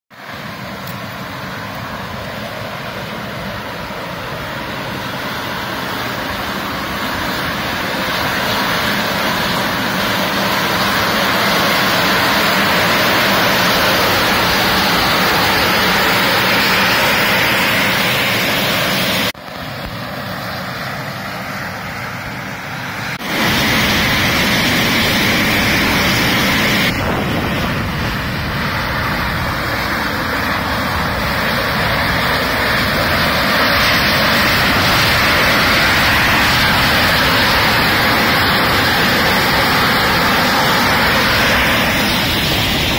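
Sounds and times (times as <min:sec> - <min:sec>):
steam vent hissing: 0:22.7 - 0:42.9.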